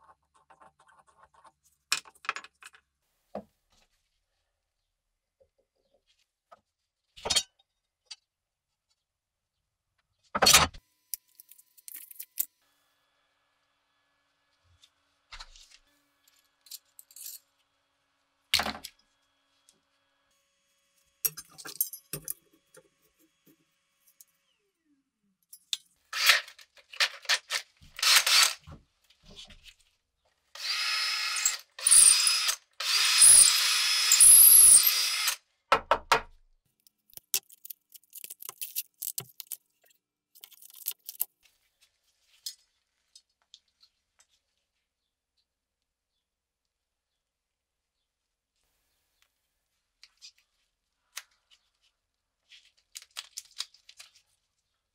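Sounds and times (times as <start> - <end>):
cordless drill whining: 28.0 - 28.6, 30.6 - 35.4
packaging rustling: 40.4 - 43.1.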